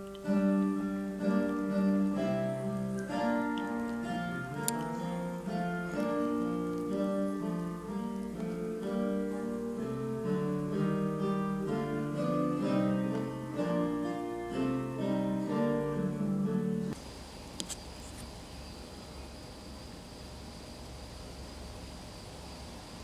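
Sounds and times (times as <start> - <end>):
acoustic guitar plucking: 0.0 - 17.0.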